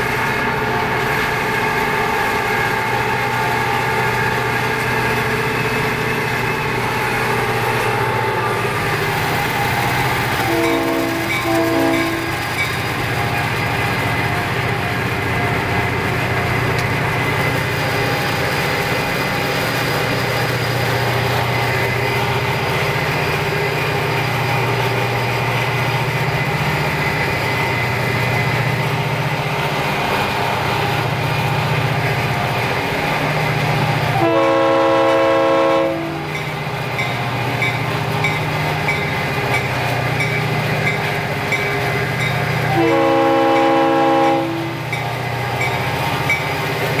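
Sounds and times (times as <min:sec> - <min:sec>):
diesel locomotive engine drone: 0:00.0 - 0:47.0
locomotive horn blast: 0:10.4 - 0:12.4, 0:34.1 - 0:36.4, 0:42.7 - 0:44.9.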